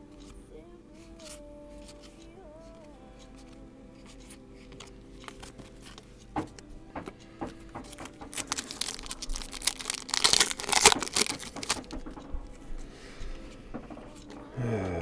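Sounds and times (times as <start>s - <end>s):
plastic wrapper tearing and crinkling: 8.0s - 12.2s.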